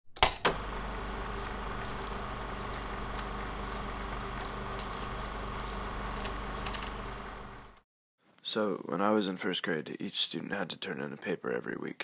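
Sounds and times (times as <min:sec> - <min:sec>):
low hum and hiss: 0:00.6 - 0:07.8.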